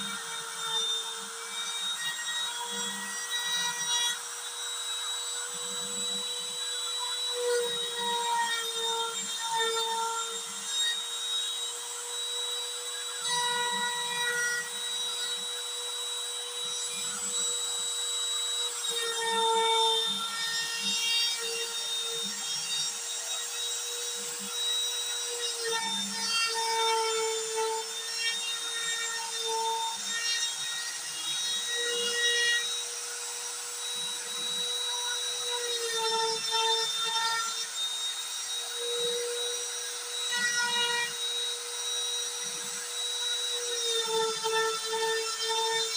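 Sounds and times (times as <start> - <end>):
router whining: 0.0 - 45.9.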